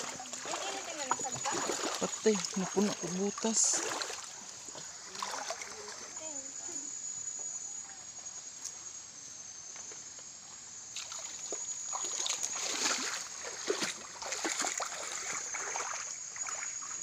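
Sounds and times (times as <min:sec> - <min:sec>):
water splashing from wading: 0:00.0 - 0:06.2, 0:11.0 - 0:17.0.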